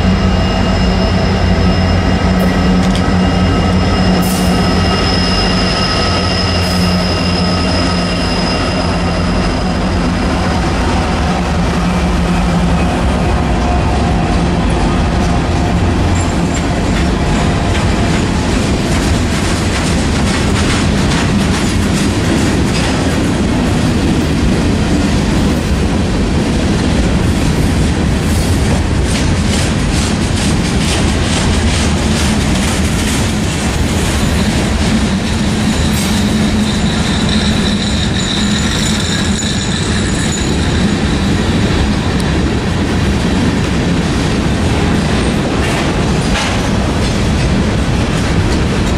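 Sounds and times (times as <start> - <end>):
high wheel squeal: 0.0 - 13.2, 34.2 - 42.2
heavy train rumble: 0.0 - 48.9
train wheels clicking over rail joints: 12.0 - 48.9.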